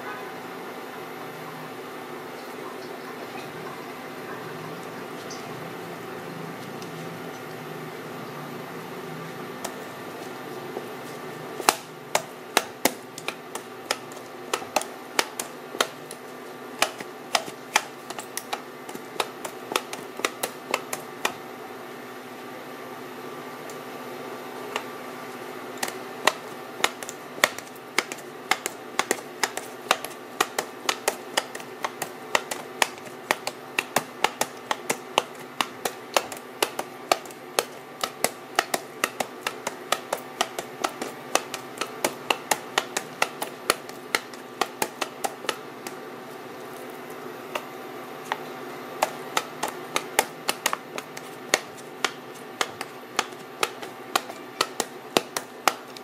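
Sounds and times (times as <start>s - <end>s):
faint steady hum: 0.0s - 56.0s
meat tenderizer clicking: 25.8s - 46.0s.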